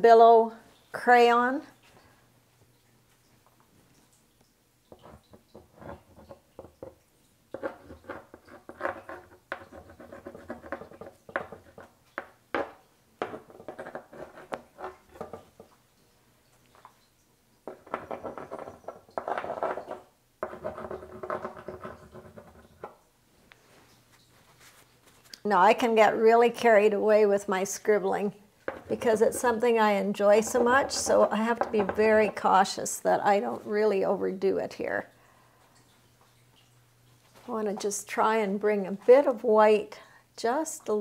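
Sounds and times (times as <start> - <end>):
crayon scratching on wax: 7.8 - 11.9.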